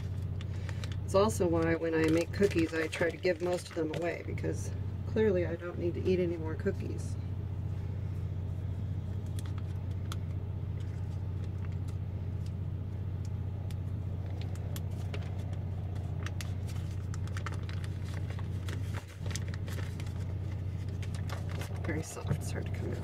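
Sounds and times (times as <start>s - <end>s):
butter wrapper crinkling: 0.0s - 4.4s, 9.0s - 12.6s, 13.6s - 22.5s
low machine hum: 0.0s - 23.0s.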